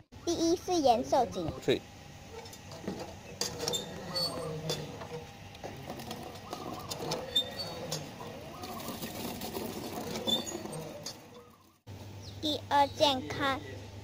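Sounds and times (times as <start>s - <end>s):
hand pump squeaking and clanking: 2.5s - 11.7s.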